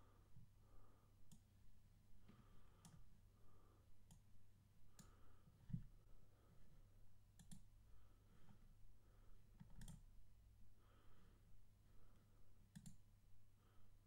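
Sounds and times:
computer mouse clicks: 0:01.3 - 0:01.5, 0:07.4 - 0:07.7, 0:09.6 - 0:10.0, 0:12.7 - 0:13.0.

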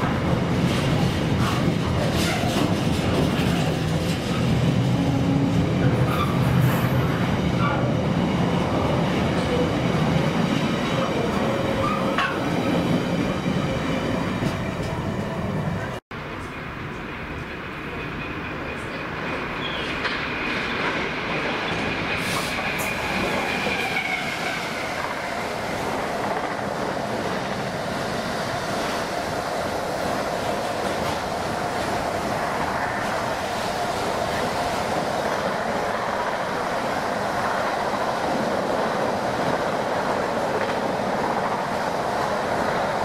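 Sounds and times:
train wheels clattering on rails: 0:00.0 - 0:05.1, 0:38.8 - 0:43.0.

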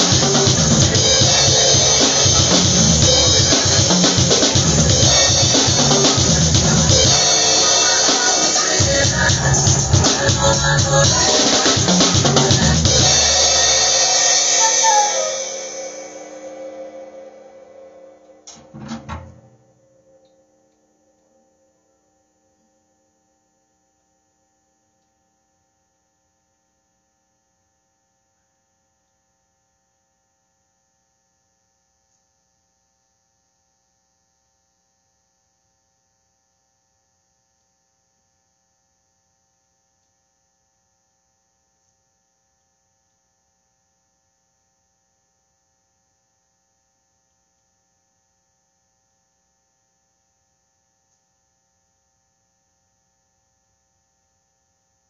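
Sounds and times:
drum kit ringing: 0:00.0 - 0:16.8, 0:18.4 - 0:19.8.

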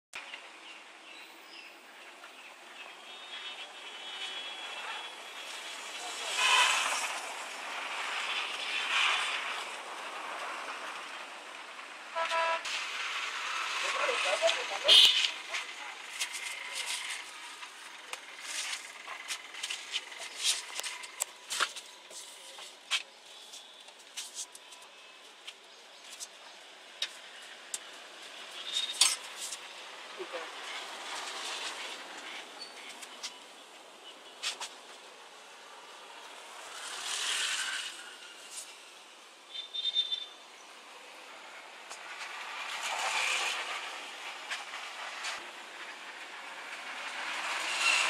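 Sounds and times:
distant traffic: 0:00.2 - 0:48.0
bird chirps: 0:39.5 - 0:40.4.

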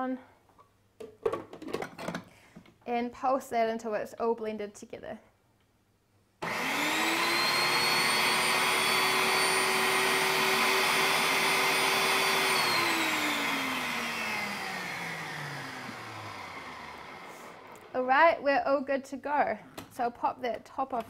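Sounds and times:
food processor motor whirring: 0:06.4 - 0:18.0.

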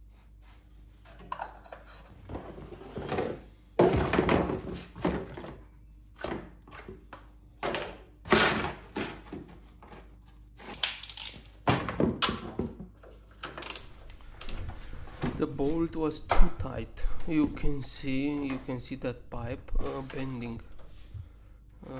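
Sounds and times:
plastic thunks and knocks on tile: 0:02.3 - 0:05.6, 0:06.2 - 0:10.0, 0:11.6 - 0:13.6.

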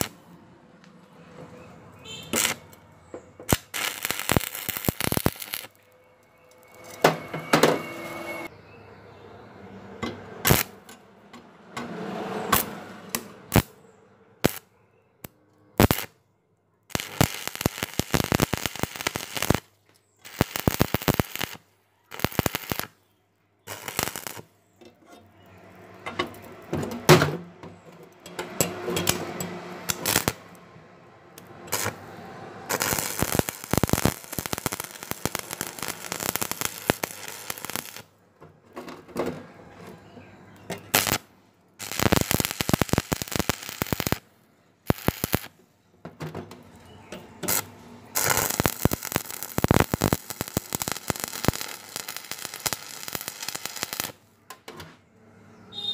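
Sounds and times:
welding arc crackling: 0:00.0 - 0:00.2, 0:02.3 - 0:02.7, 0:03.4 - 0:05.8, 0:10.4 - 0:10.8, 0:12.6 - 0:13.7, 0:14.4 - 0:14.6, 0:15.8 - 0:16.1, 0:16.9 - 0:23.0, 0:23.7 - 0:24.5, 0:29.8 - 0:30.6, 0:31.6 - 0:38.1, 0:40.9 - 0:44.2, 0:44.8 - 0:45.5, 0:47.4 - 0:54.2.

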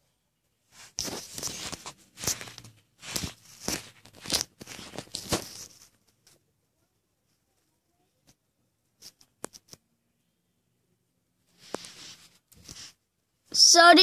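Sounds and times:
rustling scraping handling noise: 0:00.7 - 0:06.4, 0:11.5 - 0:13.0.

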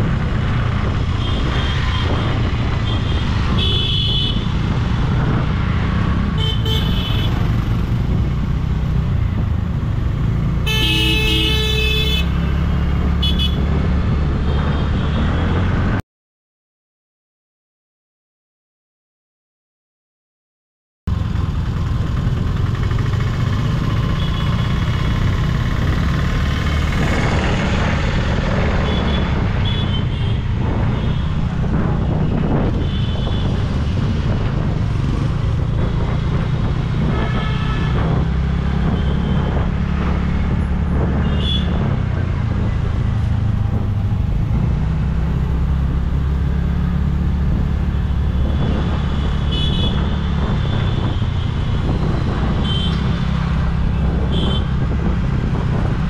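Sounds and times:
vehicle horn toots: 0:10.6 - 0:12.3, 0:37.1 - 0:38.1, 0:41.2 - 0:41.8, 0:49.4 - 0:50.1, 0:52.6 - 0:53.0, 0:54.3 - 0:54.7
scooter ride rumble: 0:21.1 - 0:56.0.

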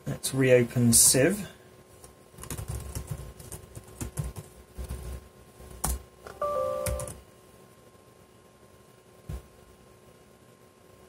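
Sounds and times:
laptop keys clicking: 0:02.4 - 0:04.5
two-tone electronic chime: 0:06.3 - 0:07.2.

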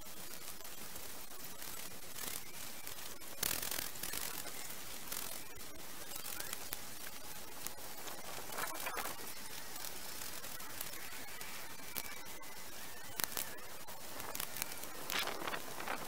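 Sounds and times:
rake scraping through dead grass: 0:14.2 - 0:16.0.

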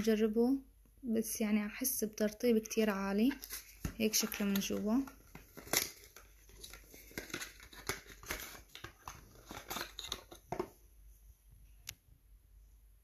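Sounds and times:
cardboard carton crinkling: 0:03.3 - 0:10.7.

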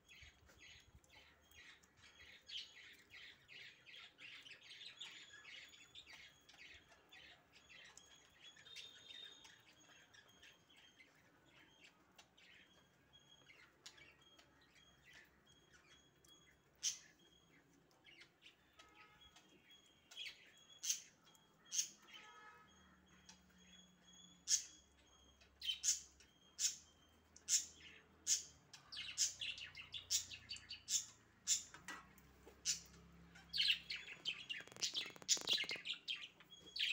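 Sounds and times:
thin high squeaks: 0:33.7 - 0:35.9.

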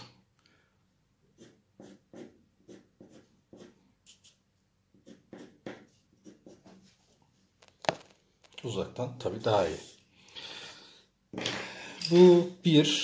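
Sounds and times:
pencil scratching on paper: 0:01.4 - 0:06.9.

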